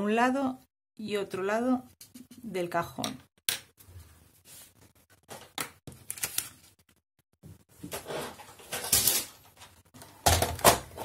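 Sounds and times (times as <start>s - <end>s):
paper rustling: 4.5s - 7.0s.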